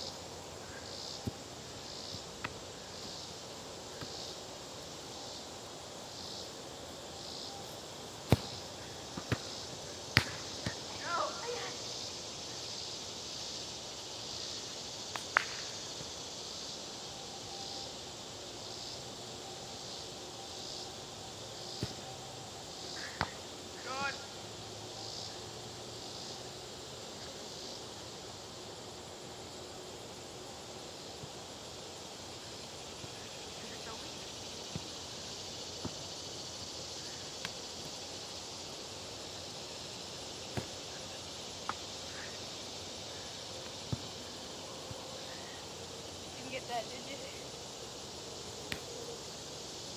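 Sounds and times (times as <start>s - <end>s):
insects droning: 0.0s - 49.9s
soccer ball kicks on grass: 1.2s - 1.5s, 8.2s - 10.8s, 21.7s - 22.0s, 40.5s - 40.8s, 43.8s - 44.2s.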